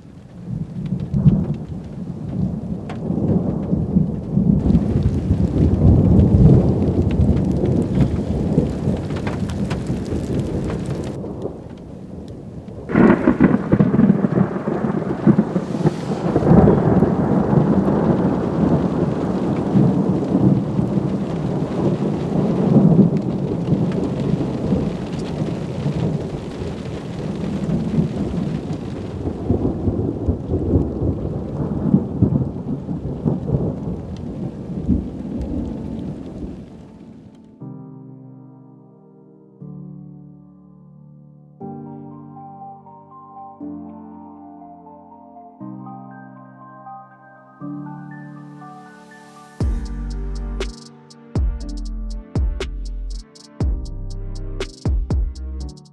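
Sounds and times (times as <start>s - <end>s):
thunder rumbling: 0.0s - 37.3s
rain: 0.0s - 37.6s, 48.4s - 50.6s.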